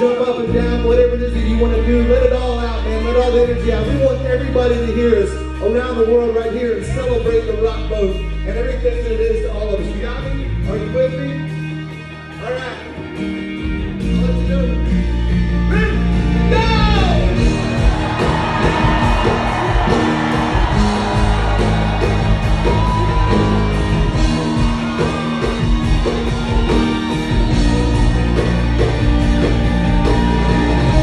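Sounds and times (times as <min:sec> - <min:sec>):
rock band playing: 0:00.0 - 0:31.0
crowd shouting and whooping: 0:16.6 - 0:31.0.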